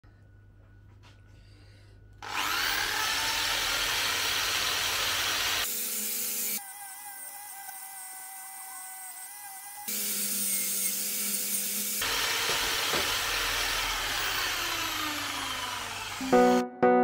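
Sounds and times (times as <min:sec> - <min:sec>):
drill motor hum: 0:02.2 - 0:05.8, 0:12.0 - 0:16.6.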